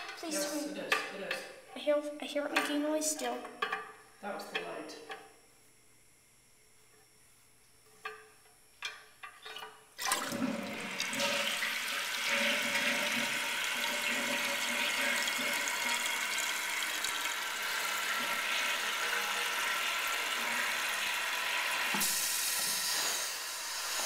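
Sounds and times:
toilet flushing and refilling: 0:09.4 - 0:24.0.

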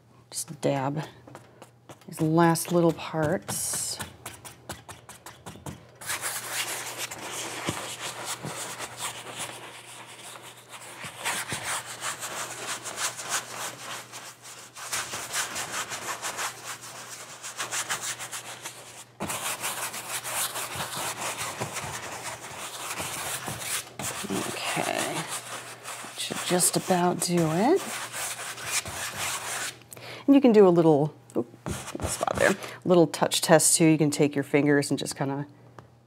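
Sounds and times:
paintbrush scrubbing on canvas: 0:01.6 - 0:29.8.

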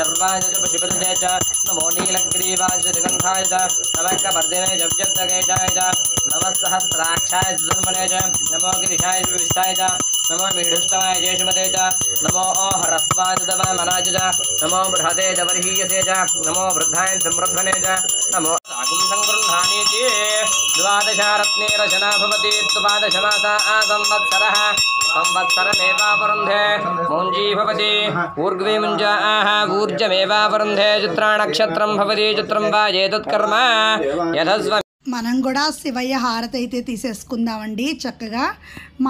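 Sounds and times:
hand bell ringing: 0:00.0 - 0:29.3
person chanting: 0:00.0 - 0:34.1.

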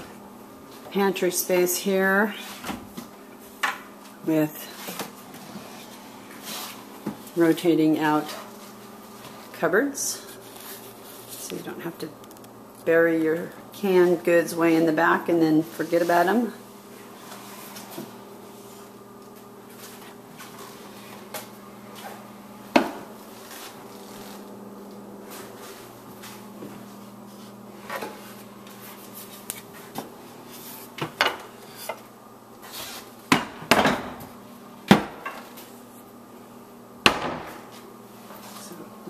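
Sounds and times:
steady low hum: 0:00.0 - 0:39.0.

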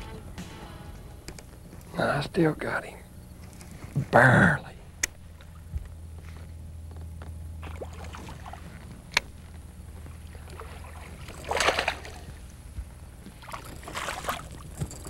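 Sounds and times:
steady low hum: 0:00.0 - 0:15.0
fish thrashing at water surface: 0:07.6 - 0:08.8, 0:10.4 - 0:12.4
splash: 0:07.6 - 0:08.8, 0:10.5 - 0:12.3.

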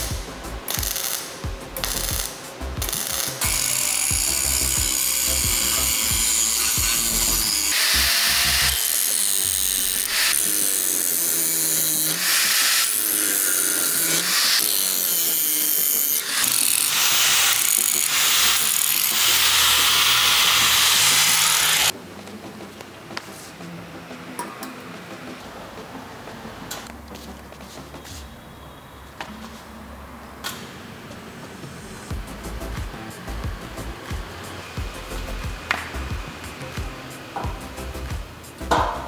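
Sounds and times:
power tool working wood: 0:02.8 - 0:21.9
knocks: 0:38.7 - 0:39.0.

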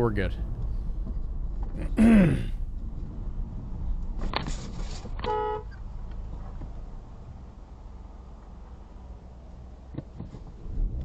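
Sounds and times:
person exclaiming: 0:01.8 - 0:02.6
car horn toot: 0:05.2 - 0:05.7.

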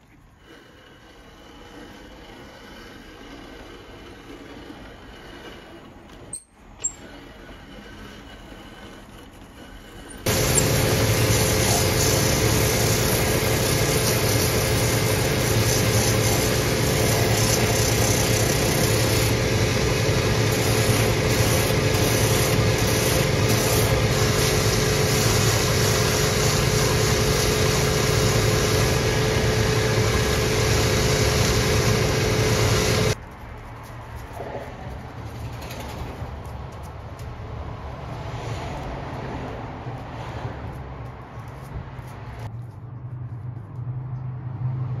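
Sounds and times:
sanding wheel on leather: 0:00.4 - 0:06.1, 0:06.8 - 0:33.2
machine motor humming: 0:10.3 - 0:33.2.

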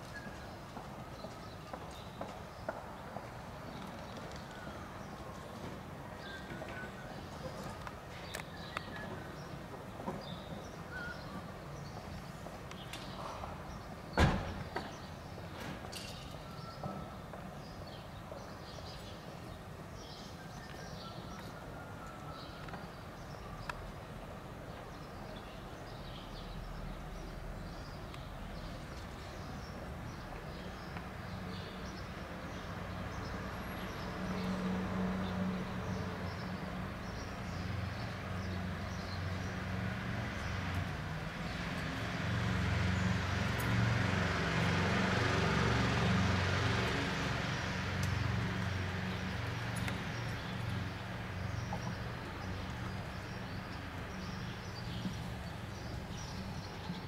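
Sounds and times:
small birds chirping: 0:46.9 - 0:57.0.

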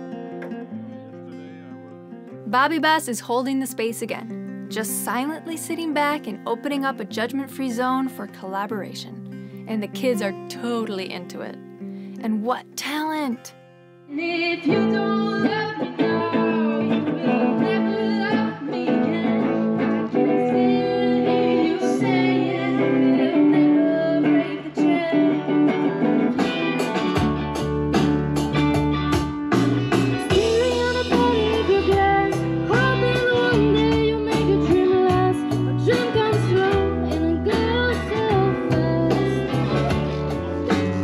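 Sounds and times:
electric guitars: 0:00.0 - 0:02.5, 0:09.1 - 0:10.8, 0:13.6 - 0:41.0
female singer: 0:02.5 - 0:11.6, 0:12.2 - 0:13.5, 0:14.1 - 0:26.3, 0:30.3 - 0:40.0
bass and drum beat: 0:26.9 - 0:41.0.

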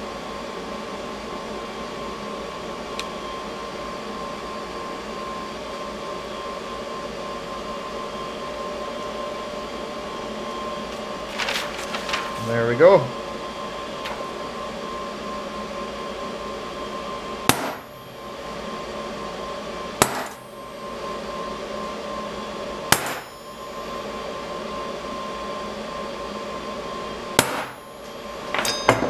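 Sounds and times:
steady hum: 0:00.0 - 0:29.0
hammer striking punch into steel: 0:17.5 - 0:17.9, 0:20.0 - 0:20.4, 0:22.9 - 0:23.3, 0:27.4 - 0:27.8.

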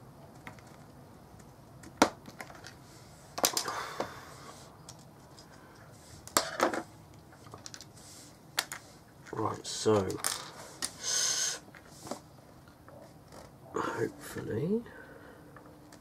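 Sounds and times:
plastic parts clicking and snapping: 0:03.4 - 0:03.8.

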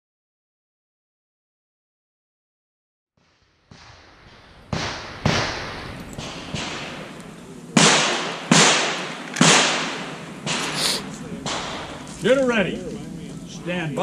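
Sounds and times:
handgun shots with echo: 0:04.7 - 0:12.2.

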